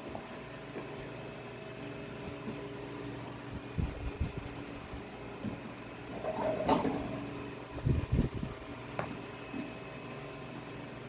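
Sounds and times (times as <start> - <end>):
fan hum: 0.0 - 11.0.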